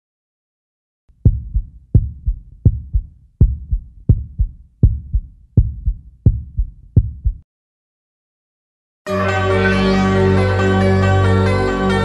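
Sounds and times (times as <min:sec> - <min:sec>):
heartbeat thumps: 0:01.2 - 0:07.4.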